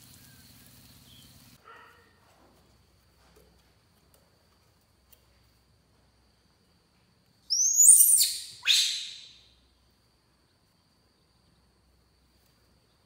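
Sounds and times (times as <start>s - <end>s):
baby monkey squealing: 7.5s - 9.4s.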